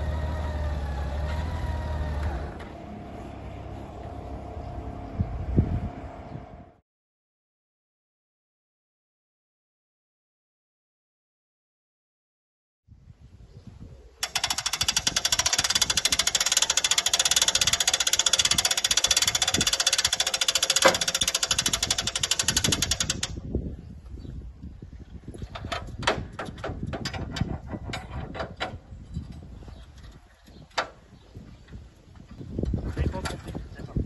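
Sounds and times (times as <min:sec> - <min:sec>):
hand-cranked ratcheting rattle: 0:14.2 - 0:23.4
metal clicks and clanks: 0:14.2 - 0:23.4, 0:25.4 - 0:31.0.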